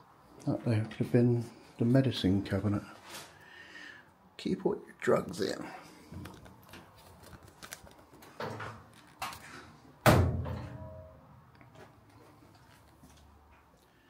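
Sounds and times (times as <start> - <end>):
cabinet door banging shut: 10.0 - 10.8.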